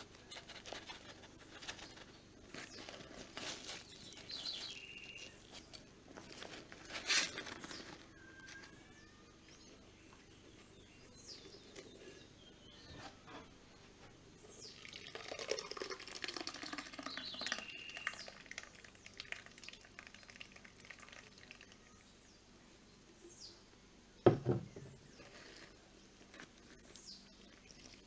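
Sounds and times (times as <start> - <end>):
faint bird chirps: 7.0 - 14.8, 16.8 - 19.2
liquid pulp pouring into jar: 14.7 - 21.8
plastic jug knocking on table: 24.2 - 24.9.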